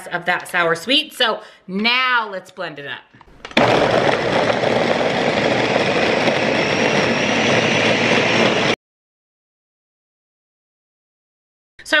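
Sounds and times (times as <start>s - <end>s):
blender running: 3.4s - 8.8s.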